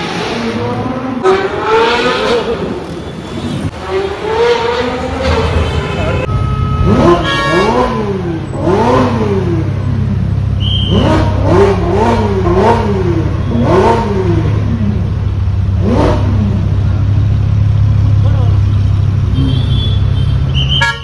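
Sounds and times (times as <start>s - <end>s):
car engine revving: 3.7s - 20.7s.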